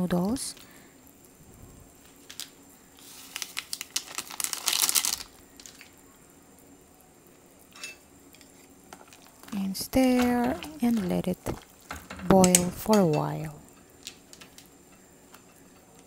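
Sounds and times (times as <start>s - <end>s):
plastic packet crinkling: 2.2s - 6.0s.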